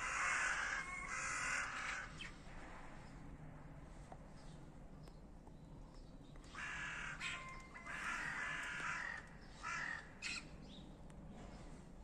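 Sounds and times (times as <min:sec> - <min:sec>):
crows cawing: 0:00.0 - 0:02.3, 0:06.5 - 0:10.4.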